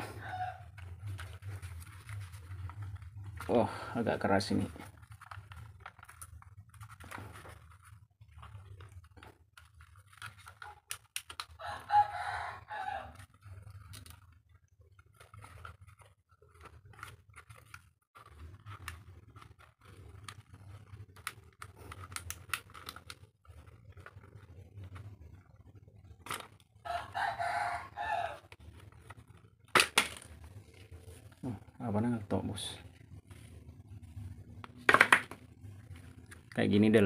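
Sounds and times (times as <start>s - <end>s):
rooster crowing: 0.0s - 0.8s, 11.6s - 13.3s, 26.8s - 28.6s
plastic housing clicking and creaking: 0.2s - 27.3s, 27.9s - 36.9s.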